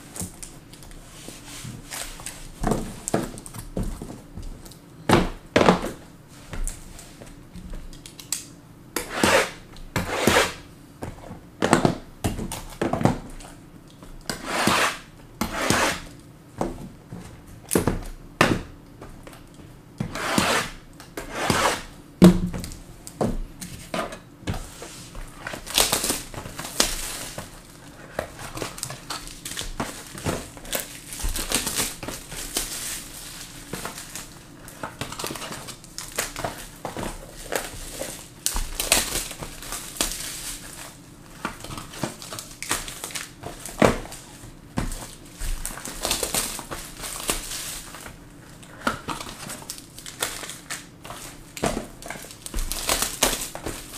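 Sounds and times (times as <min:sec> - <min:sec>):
plastic wrapping crinkling: 0:25.2 - 0:53.9.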